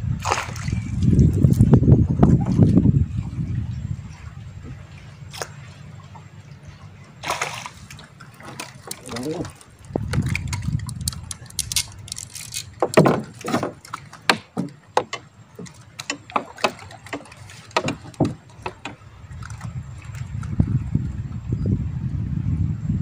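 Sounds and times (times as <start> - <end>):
fish knocking in wooden boat: 8.4 - 19.6.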